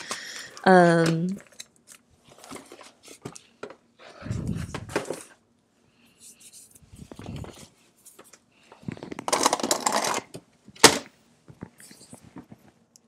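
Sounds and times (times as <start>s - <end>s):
rummaging small hard objects: 8.8s - 10.3s.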